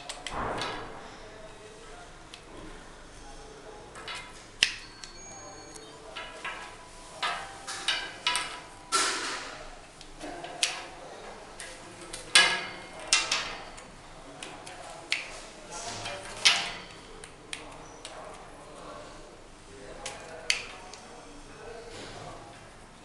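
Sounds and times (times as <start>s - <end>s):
clicks and clatter of handled parts: 4.0s - 11.0s, 11.6s - 18.4s.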